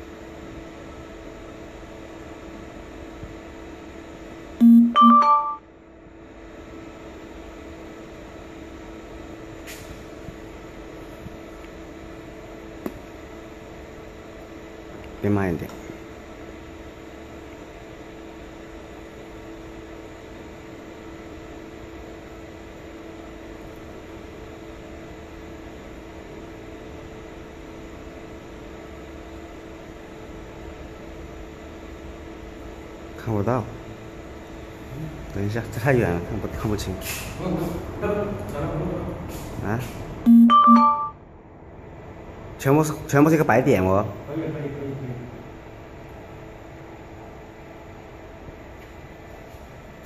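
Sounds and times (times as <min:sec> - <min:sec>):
cooling fans humming: 0:00.0 - 0:50.0
electronic chime: 0:04.6 - 0:05.7, 0:40.3 - 0:41.2.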